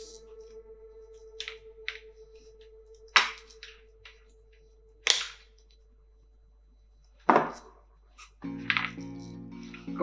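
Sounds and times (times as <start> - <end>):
sharp plastic snaps: 5.0 - 5.6.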